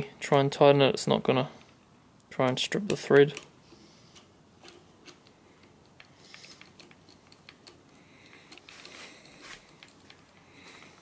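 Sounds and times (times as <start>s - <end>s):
metallic clicks and taps: 4.6s - 8.9s.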